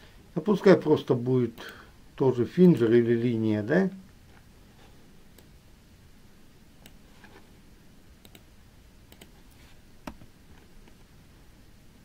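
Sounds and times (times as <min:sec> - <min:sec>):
low hiss: 0:00.0 - 0:12.0
computer mouse clicks: 0:06.8 - 0:07.0, 0:08.2 - 0:08.5, 0:09.1 - 0:11.0.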